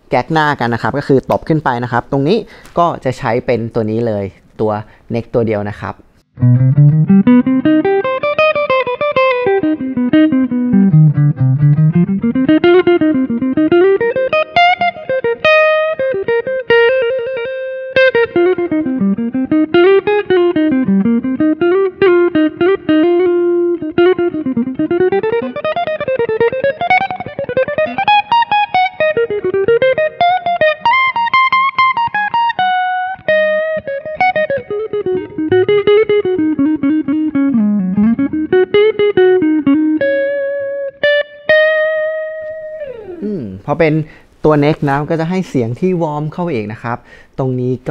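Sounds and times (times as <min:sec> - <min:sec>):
electric guitar single-note runs: 0:06.4 - 0:43.4.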